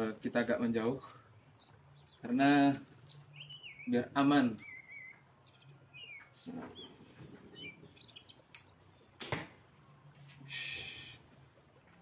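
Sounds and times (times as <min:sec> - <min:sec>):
birds chirping: 0:00.0 - 0:12.0
short hissing burst: 0:10.4 - 0:11.2.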